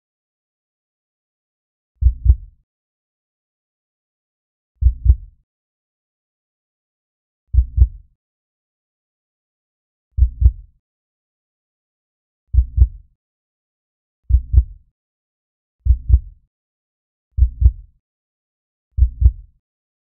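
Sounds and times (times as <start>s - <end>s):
heartbeat thumps: 7.5s - 7.9s, 12.5s - 13.0s, 14.3s - 14.7s, 15.8s - 16.3s, 17.4s - 17.8s, 19.0s - 19.4s.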